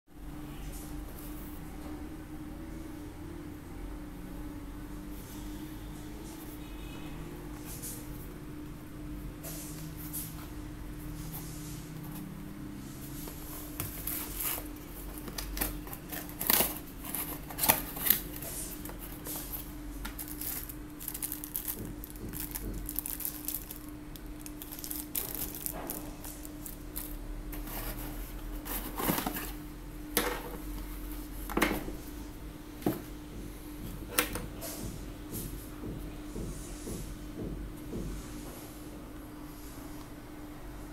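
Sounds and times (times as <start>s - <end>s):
steady hum: 0.1s - 40.9s
cardboard box rustling and scraping: 13.2s - 21.8s, 27.0s - 29.6s
plastic bag crinkling: 20.1s - 29.5s.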